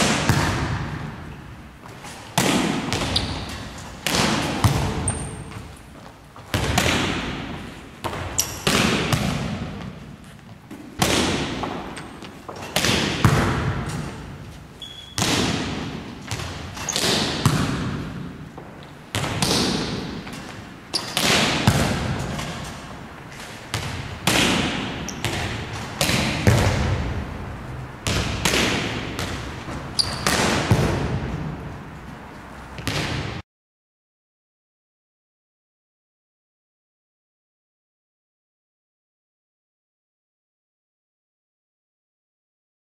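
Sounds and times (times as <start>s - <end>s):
ball bouncing on wooden floor: 8.0s - 10.0s, 23.7s - 27.1s, 28.0s - 31.5s
hands slapping volleyball: 23.8s - 27.1s, 28.0s - 29.5s.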